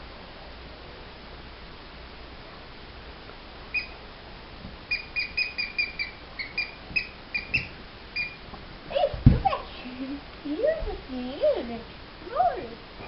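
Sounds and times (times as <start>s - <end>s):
squeaky dog toy squeaking: 3.7s - 4.0s, 4.9s - 8.4s.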